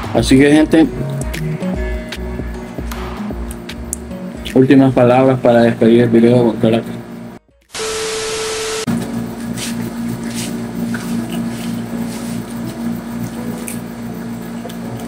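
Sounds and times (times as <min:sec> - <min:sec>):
static hiss: 0:07.7 - 0:08.9
steady beep tone: 0:07.8 - 0:08.9.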